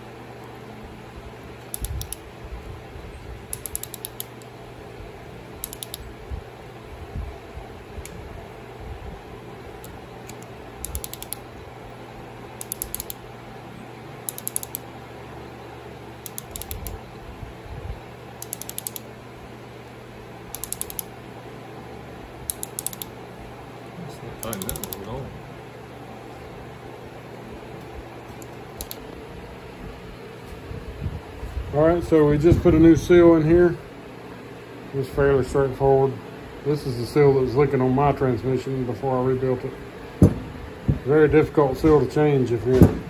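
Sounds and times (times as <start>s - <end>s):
steady low hum: 0.0s - 43.0s
ratchet wrench clicking: 3.5s - 4.4s, 5.6s - 6.0s, 10.3s - 11.4s, 12.6s - 13.2s, 14.3s - 14.8s, 16.2s - 17.0s, 18.4s - 19.0s, 20.5s - 21.1s, 22.5s - 23.1s, 24.5s - 25.0s.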